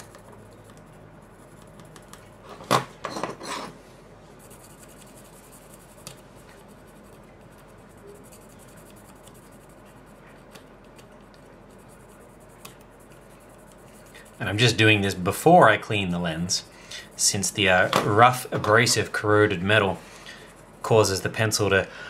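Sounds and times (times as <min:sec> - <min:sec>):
pencil scratching on metal: 0:00.0 - 0:02.4, 0:04.4 - 0:15.2.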